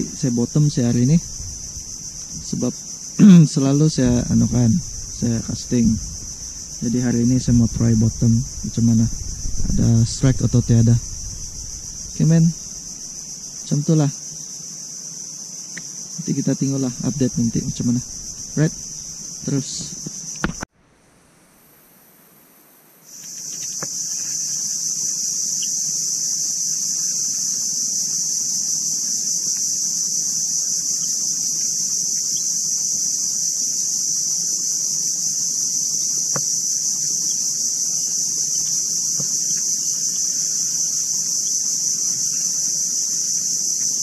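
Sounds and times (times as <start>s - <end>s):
high-pitched insect drone: 0.0s - 20.7s, 23.0s - 44.0s
faint clicks: 23.2s - 23.9s.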